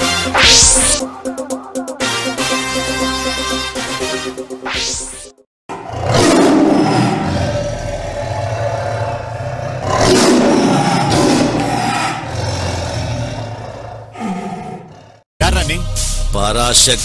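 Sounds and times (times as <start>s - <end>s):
dramatic roaring: 5.7s - 15.2s.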